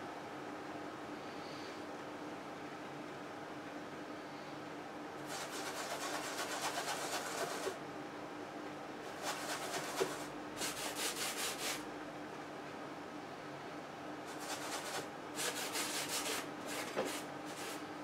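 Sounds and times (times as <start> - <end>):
brush scrubbing on canvas: 5.3 - 7.8, 9.1 - 11.8, 14.3 - 17.8.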